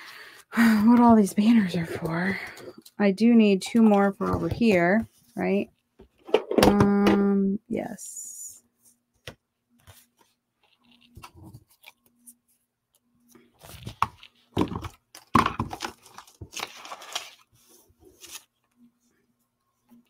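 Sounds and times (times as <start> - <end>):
paper scraps rustling: 15.7 - 18.5.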